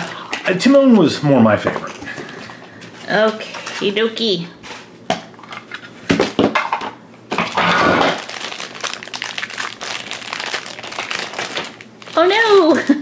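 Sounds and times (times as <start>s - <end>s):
plastic bag crinkling: 7.4s - 12.8s.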